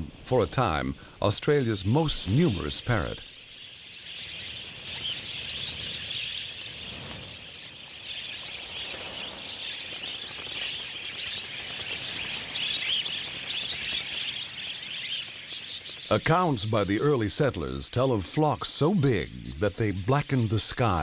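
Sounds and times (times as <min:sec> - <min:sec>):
flock of budgerigars chattering: 0:00.4 - 0:21.0.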